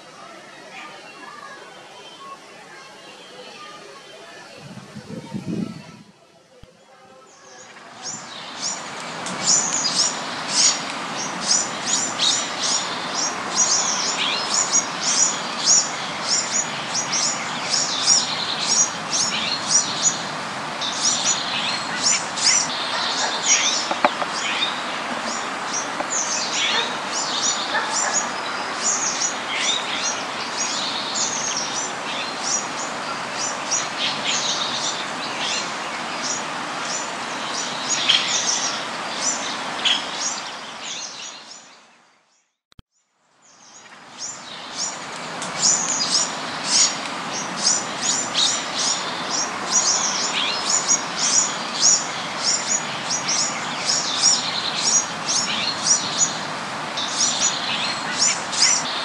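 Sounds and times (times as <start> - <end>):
steady background hiss: 6.0 - 42.0, 43.3 - 59.0
birds chirping: 6.6 - 42.4.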